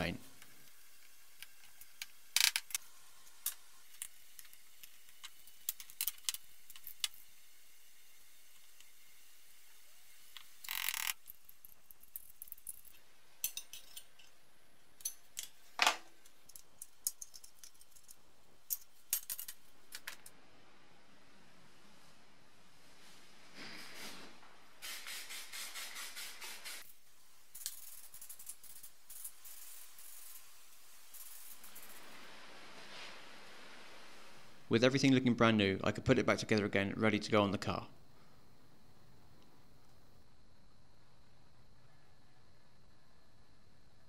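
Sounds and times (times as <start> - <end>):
clinks of small plastic and metal parts: 10.7 - 14.4, 15.0 - 20.3.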